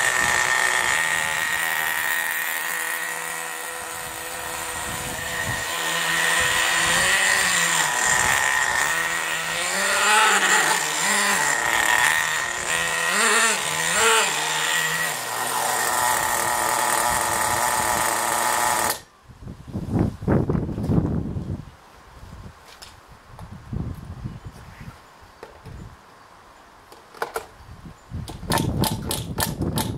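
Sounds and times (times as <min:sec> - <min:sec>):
small nitro engine revving: 0:00.0 - 0:19.1.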